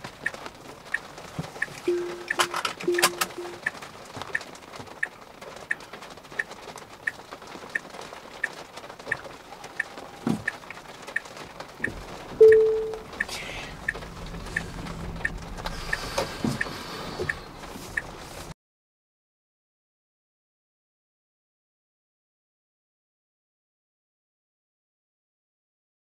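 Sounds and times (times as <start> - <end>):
turn signal ticking: 0.0 - 18.4
short beep: 1.9 - 3.6, 12.4 - 13.0
low rumble: 13.4 - 16.2.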